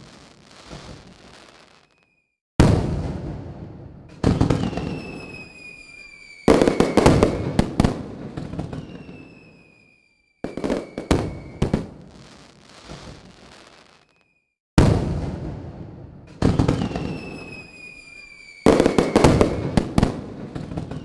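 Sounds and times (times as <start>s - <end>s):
fireworks crackling: 0.0s - 3.4s, 4.1s - 15.5s, 16.3s - 21.0s
fireworks bangs: 0.0s - 21.0s
high falling whistle: 4.6s - 7.5s, 8.6s - 11.6s, 16.8s - 19.8s.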